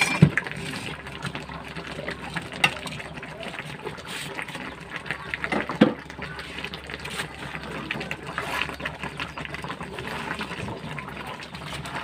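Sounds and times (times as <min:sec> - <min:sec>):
spatula scraping wok: 0:00.0 - 0:01.1, 0:03.7 - 0:04.8, 0:06.4 - 0:09.0, 0:11.4 - 0:12.0
syrup boiling and popping: 0:00.0 - 0:12.0.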